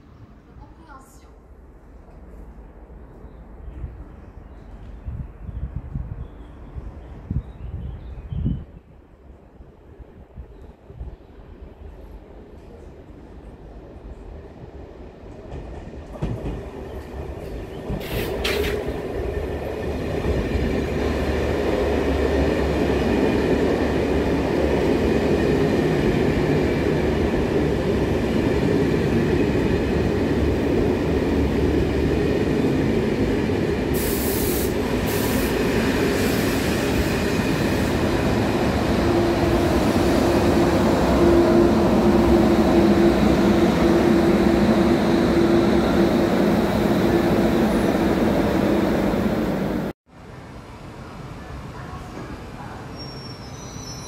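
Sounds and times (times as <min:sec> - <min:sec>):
train wheels rumbling on rails: 0:11.8 - 0:50.0
short high hisses: 0:18.0 - 0:18.8, 0:34.0 - 0:36.8.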